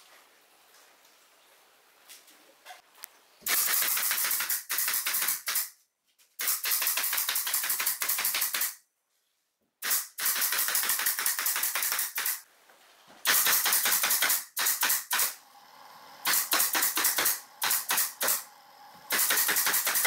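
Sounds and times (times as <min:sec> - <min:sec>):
nail gun firing: 0:03.4 - 0:05.7, 0:06.4 - 0:08.8, 0:09.8 - 0:12.4, 0:13.2 - 0:15.4, 0:16.2 - 0:18.5, 0:19.1 - 0:20.0.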